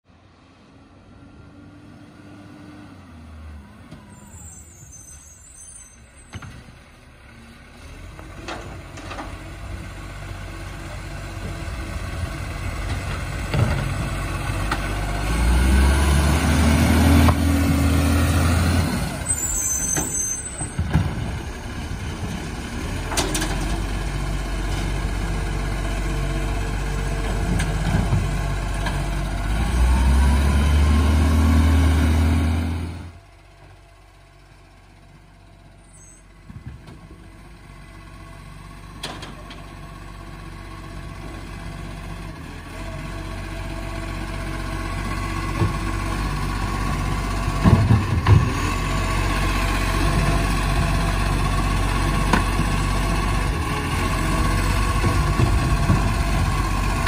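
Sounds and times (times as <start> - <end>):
garbage truck diesel engine: 0.1 - 57.0
clunks: 6.2 - 6.8, 8.1 - 9.6, 23.0 - 24.0, 36.0 - 37.4, 38.9 - 39.8, 47.4 - 48.8, 54.3 - 57.0.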